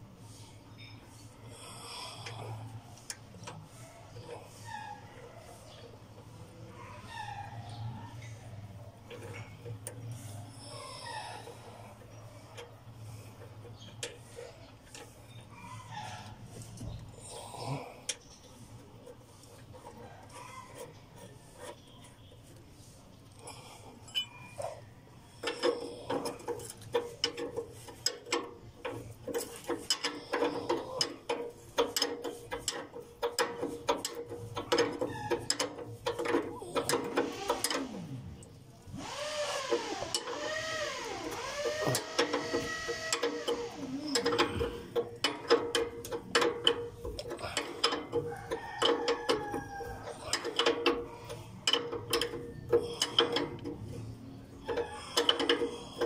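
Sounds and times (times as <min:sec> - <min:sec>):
metal tools clinking: 0:24.0 - 0:24.8
wavering squeak: 0:39.0 - 0:44.8
ratchet wrench clicking: 0:39.0 - 0:49.7, 0:50.3 - 0:54.0, 0:54.6 - 0:56.0.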